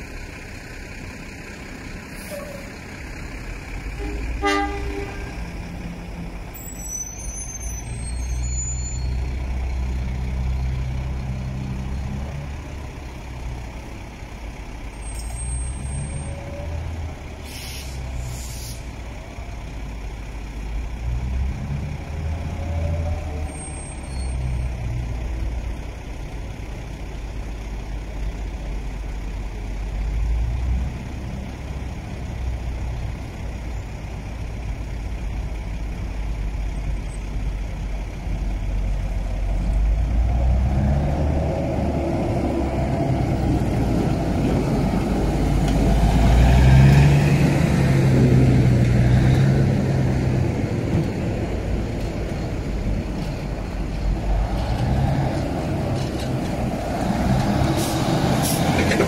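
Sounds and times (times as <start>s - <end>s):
diesel locomotive engine drone: 0.0s - 59.0s
faint high squeals: 6.6s - 9.3s.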